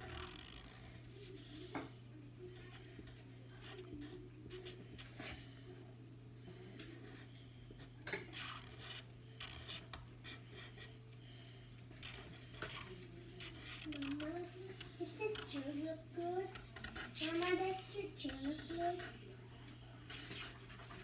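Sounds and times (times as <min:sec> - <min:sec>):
faint steady hum: 0:00.0 - 0:21.0
marker scratching on paper: 0:08.3 - 0:10.9.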